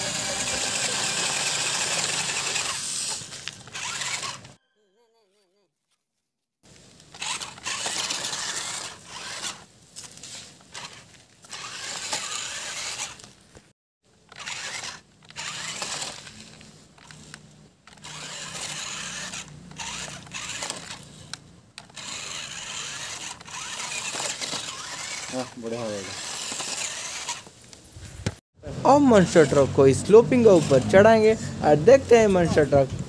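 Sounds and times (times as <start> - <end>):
toy car motors whirring: 0.0 - 4.6, 6.8 - 27.9, 28.8 - 33.0
tyres scrabbling through dry grass: 1.4 - 4.5, 6.7 - 13.6, 14.3 - 21.3, 21.9 - 28.2.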